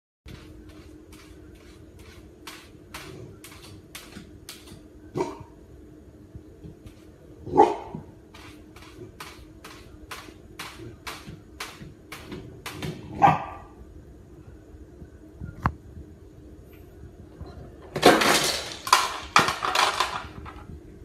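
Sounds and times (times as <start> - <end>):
faint steady hum: 0.3 - 21.0
puppy barking: 7.5 - 8.0, 13.1 - 13.7.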